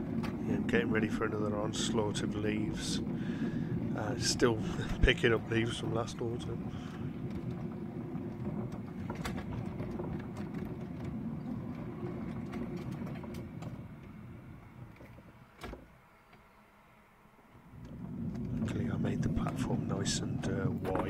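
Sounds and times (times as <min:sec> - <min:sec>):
train wheels rumbling on track: 0:00.0 - 0:15.6, 0:17.5 - 0:21.0.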